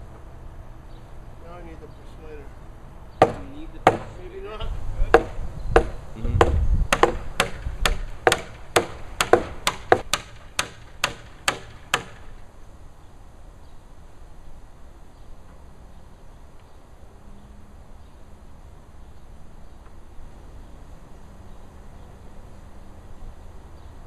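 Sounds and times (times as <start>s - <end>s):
mallet striking heavy timber: 3.2s - 4.2s, 5.1s - 12.3s.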